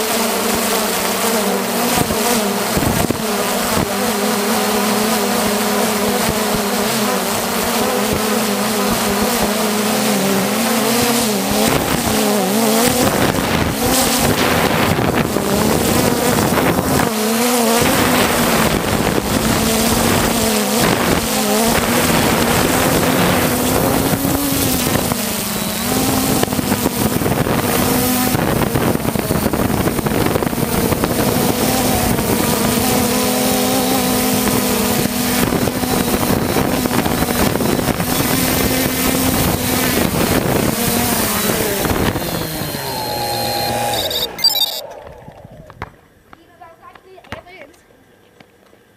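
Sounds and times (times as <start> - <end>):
drone propellers humming: 0.0 - 45.1
wind noise on microphone: 1.9 - 4.0, 10.7 - 43.9.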